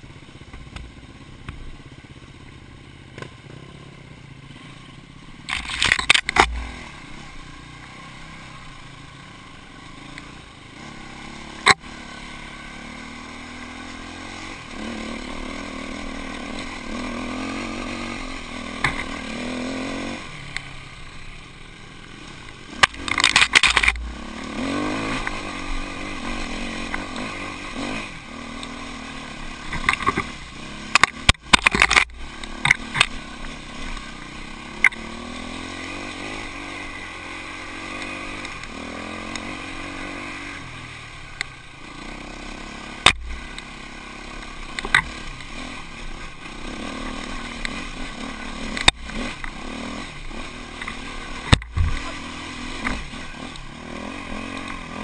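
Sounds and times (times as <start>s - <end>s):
motorcycle engine revving: 0.0s - 55.0s
knocks and rattles over bumps: 50.8s - 52.2s.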